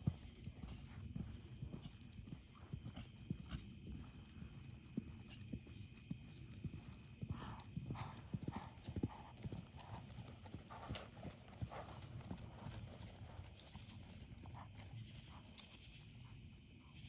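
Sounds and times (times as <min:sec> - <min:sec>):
horse trotting on sand: 0:00.0 - 0:16.8.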